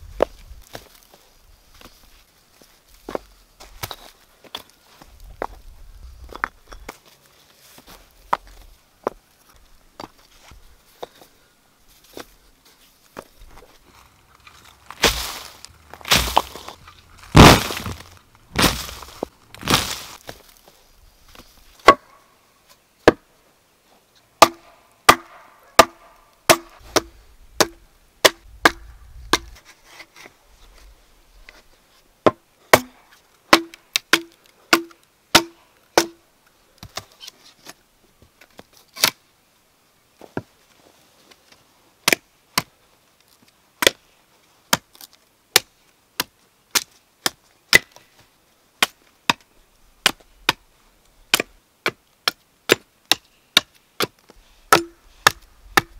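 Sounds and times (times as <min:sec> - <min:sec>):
hatchet chopping wooden board: 0:16.1 - 0:16.5, 0:24.4 - 0:29.5, 0:32.3 - 0:36.2, 0:54.7 - 0:55.9.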